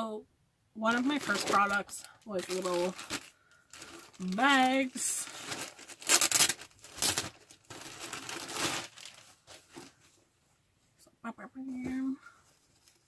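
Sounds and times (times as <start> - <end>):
packaging crinkling: 0.9 - 10.0.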